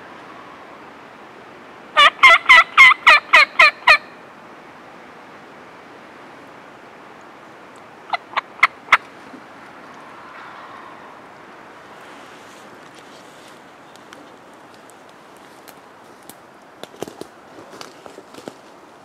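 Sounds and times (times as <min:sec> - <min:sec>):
turkey clucks: 0:02.0 - 0:04.0, 0:08.1 - 0:09.1
turkey yelping: 0:02.0 - 0:04.0, 0:08.1 - 0:09.0.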